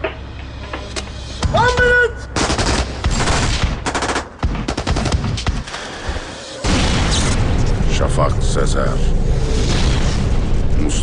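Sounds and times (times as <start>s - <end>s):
automatic gunfire: 2.4s - 5.5s.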